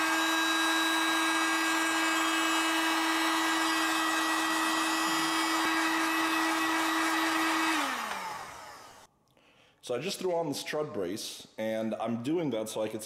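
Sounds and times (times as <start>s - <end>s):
heat gun fan whine: 0.0s - 9.1s.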